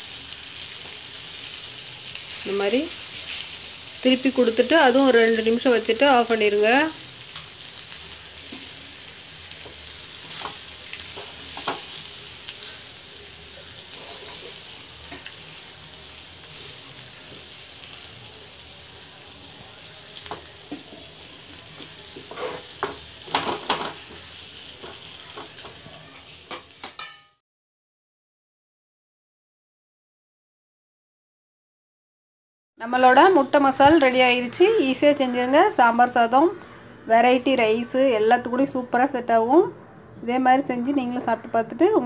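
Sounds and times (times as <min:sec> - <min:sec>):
food sizzling in oil: 0:00.0 - 0:27.4
spatula scraping and tapping pan: 0:09.6 - 0:12.0, 0:22.2 - 0:25.8.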